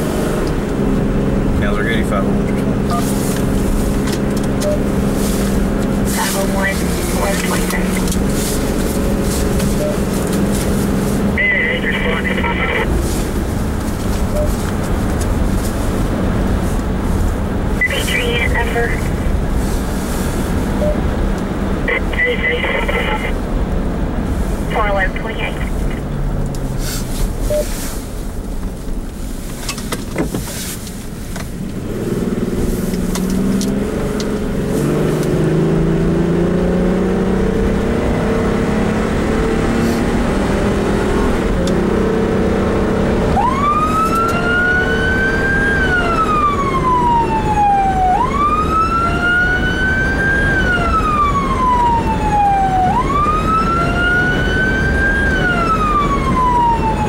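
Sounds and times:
wail siren: 43.3s - 57.0s.

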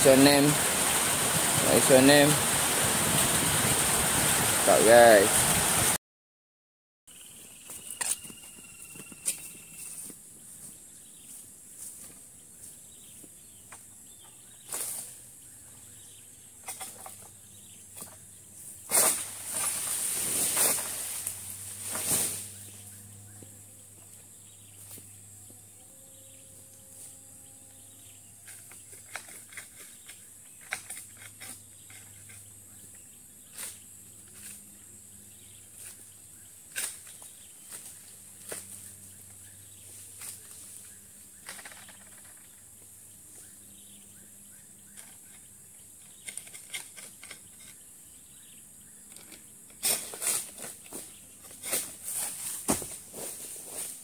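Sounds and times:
rustling crash of falling leaves: 0.0s - 6.0s, 18.9s - 22.8s
pole and blade clicks and scrapes: 28.4s - 32.5s, 46.0s - 47.9s.

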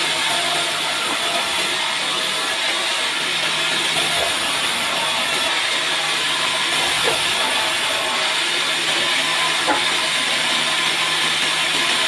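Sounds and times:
band saw cutting wood: 0.0s - 12.0s.

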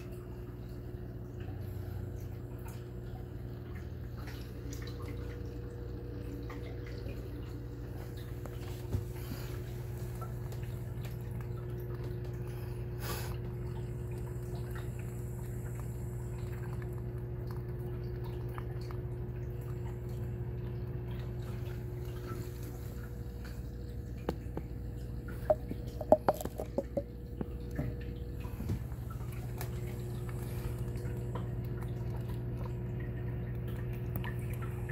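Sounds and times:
aquarium pumps humming: 0.0s - 34.9s
water dripping and trickling: 0.0s - 34.9s.

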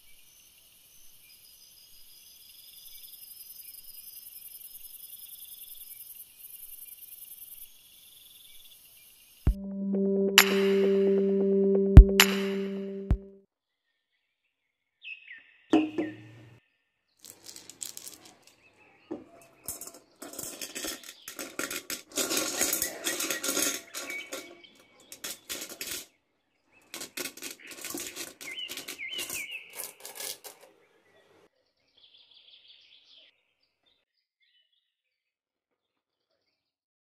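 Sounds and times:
pebbles clattering into glass bowl: 17.2s - 18.6s, 19.6s - 26.1s, 26.9s - 30.6s.

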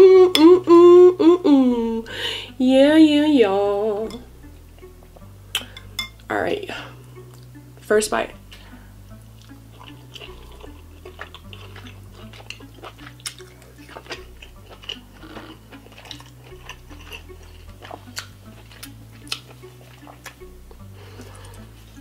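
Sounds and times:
soft background music: 0.0s - 22.0s
close chewing mouth clicks: 9.4s - 20.4s.

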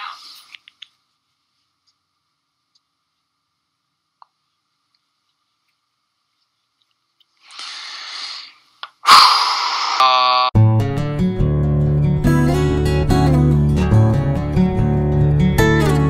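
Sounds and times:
man groaning: 9.9s - 10.5s
acoustic guitar music: 10.6s - 16.0s.

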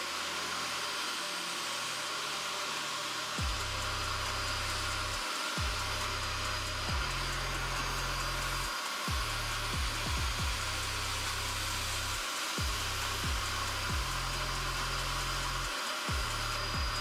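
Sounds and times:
carpet cleaner motor whirring: 0.0s - 17.0s
kick drums: 3.4s - 3.8s, 5.6s - 7.3s, 9.1s - 10.8s, 12.6s - 14.3s, 16.1s - 17.0s
background music with bass: 3.4s - 17.0s.

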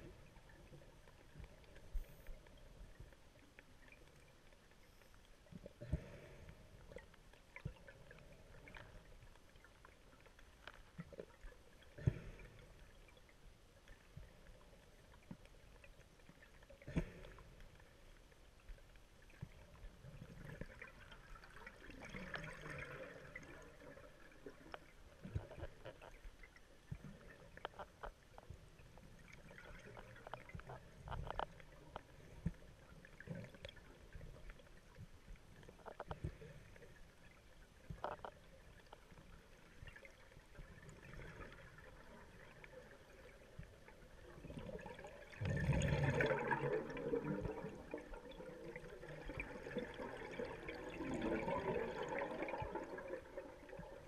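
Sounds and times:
underwater exhaled bubbles: 0.0s - 54.0s
diving gear clicks and knocks: 29.9s - 32.1s.

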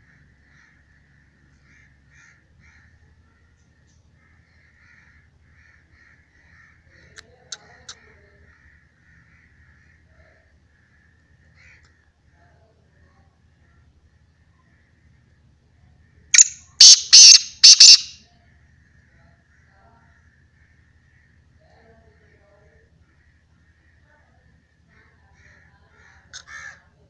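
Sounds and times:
faint bird calls: 0.0s - 15.2s, 16.0s - 27.0s
sharp clicks: 16.4s - 18.2s.

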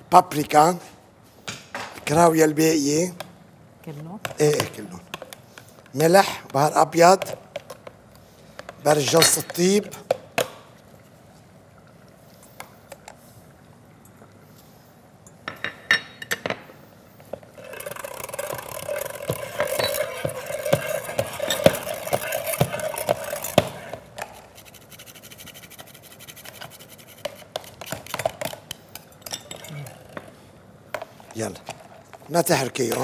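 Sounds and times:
scraping in glass bowl: 17.6s - 28.3s.

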